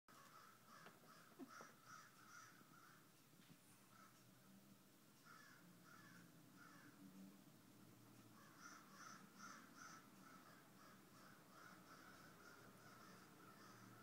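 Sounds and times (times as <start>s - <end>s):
crows cawing: 0.1s - 3.1s, 3.9s - 4.3s, 5.2s - 7.1s, 8.2s - 14.0s.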